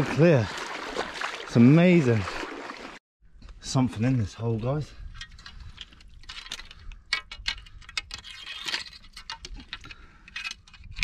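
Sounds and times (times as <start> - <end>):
metal hook scraping rock: 5.1 - 11.0.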